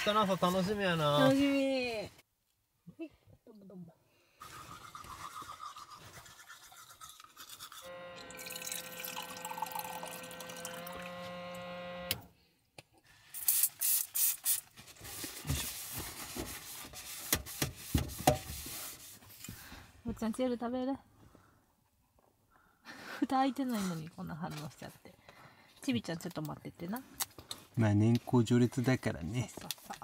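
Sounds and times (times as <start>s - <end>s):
toothbrush scrubbing teeth: 4.5s - 7.9s
steady humming tone: 7.9s - 12.2s.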